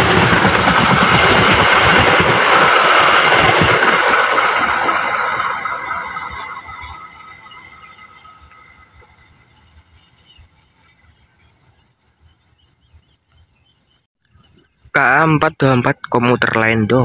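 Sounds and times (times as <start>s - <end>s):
passenger train rumbling: 0.0s - 10.4s
insect chirping rhythmically: 5.3s - 17.0s.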